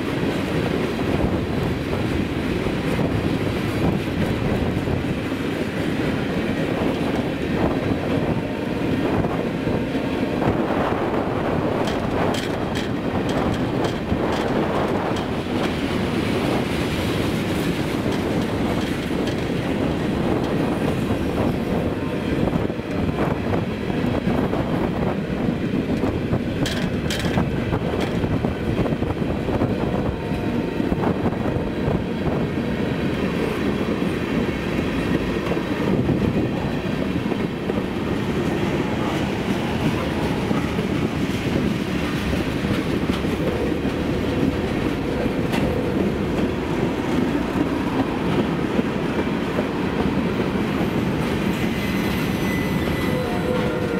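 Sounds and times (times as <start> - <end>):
train wheels rumbling on rail: 0.0 - 53.9
wheels clacking over rail joints: 11.2 - 24.5, 25.8 - 31.0, 32.0 - 53.9.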